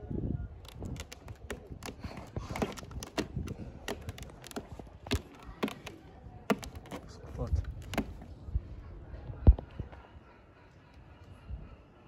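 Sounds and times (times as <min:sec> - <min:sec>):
cat clawing carpet: 0:00.6 - 0:08.3.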